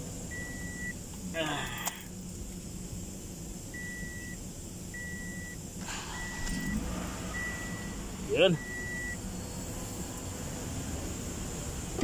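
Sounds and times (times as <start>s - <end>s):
low steady hum: 0.0s - 12.0s
car warning chime beeping: 0.3s - 0.9s, 3.8s - 9.2s.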